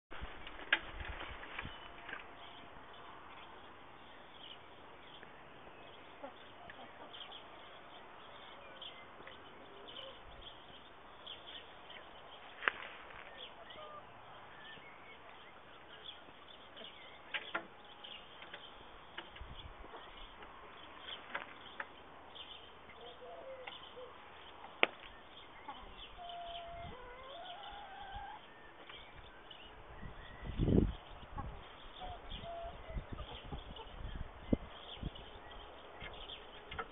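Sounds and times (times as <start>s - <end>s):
hen clucking: 6.0s - 7.6s, 12.7s - 14.2s, 25.5s - 28.4s, 31.2s - 34.0s, 36.6s - 36.9s.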